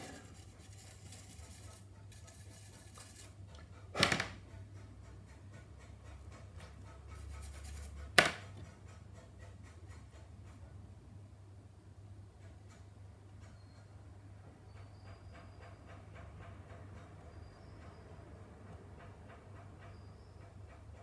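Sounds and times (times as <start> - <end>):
hand tool scratching plastic: 0.0 - 3.4, 7.2 - 8.6
short scrapes or knocks: 0.0 - 4.4.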